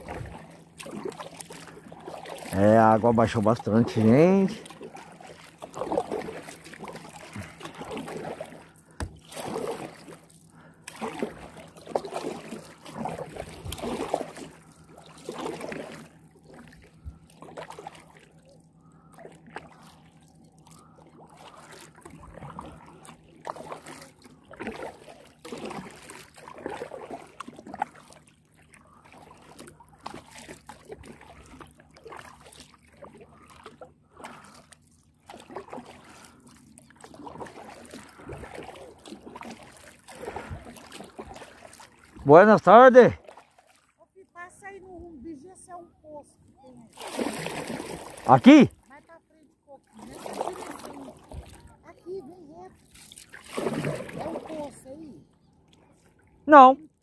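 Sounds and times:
water dripping from paddle: 0.0 - 2.6, 4.1 - 42.3
kayak paddle strokes in water: 0.0 - 44.8, 46.6 - 57.0.

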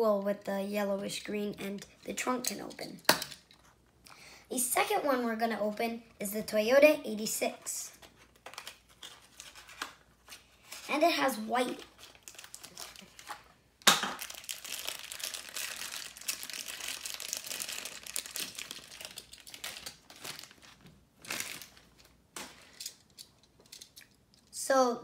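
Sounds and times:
plastic wrapper crinkling: 8.0 - 24.5.

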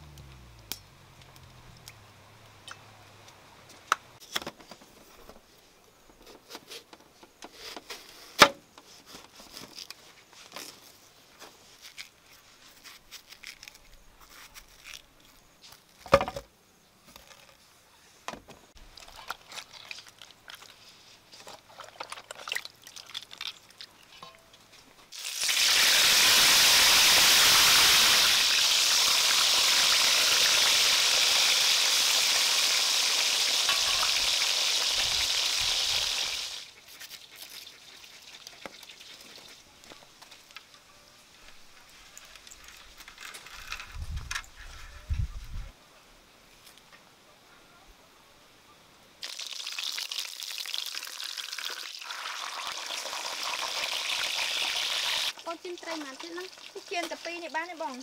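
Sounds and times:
fish sizzling in hot oil: 25.1 - 36.6, 49.2 - 58.0.

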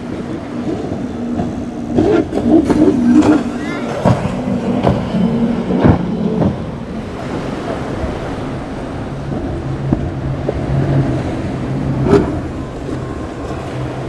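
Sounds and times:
outboard motors droning: 0.0 - 14.0.

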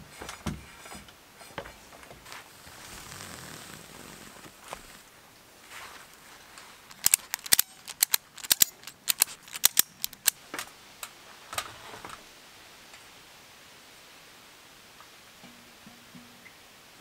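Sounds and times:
sharp clicks: 6.9 - 10.4.

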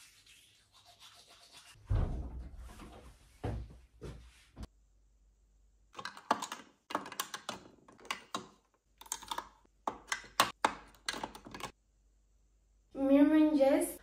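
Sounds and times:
plastic makeup tubes clattering: 6.0 - 11.8.

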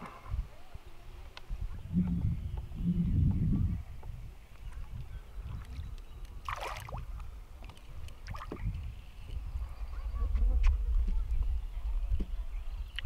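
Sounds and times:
fish splashing in water: 5.5 - 8.7.

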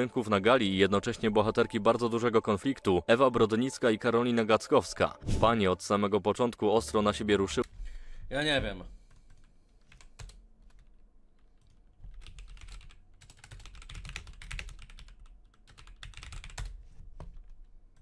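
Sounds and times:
typing on computer keyboard: 9.1 - 18.0.

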